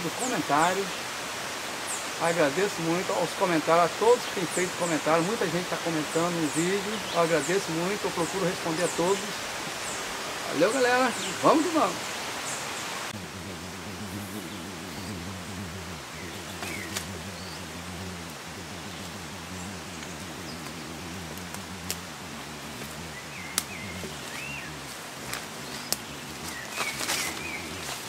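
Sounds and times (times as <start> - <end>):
low steady drone: 13.1 - 28.0
bird chirps: 13.5 - 28.0.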